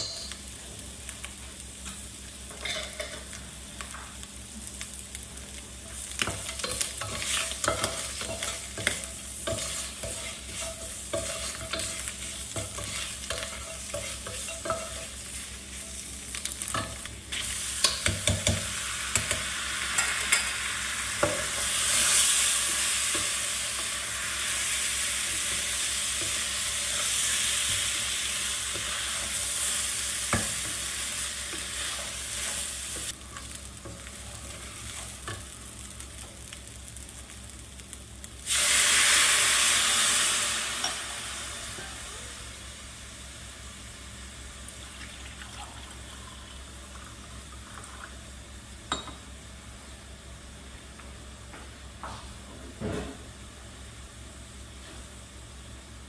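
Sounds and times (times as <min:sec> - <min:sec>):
liquid hitting hot rice sizzle: 0:00.0 - 0:41.6
rice sizzling in a pot: 0:00.0 - 0:56.0.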